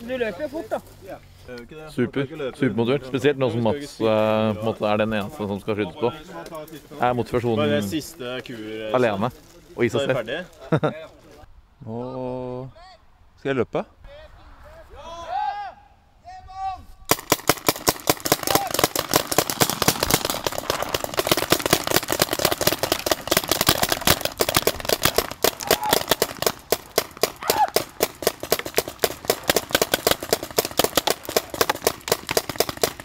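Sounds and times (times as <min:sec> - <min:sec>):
paintball markers firing: 0:17.1 - 0:33.0.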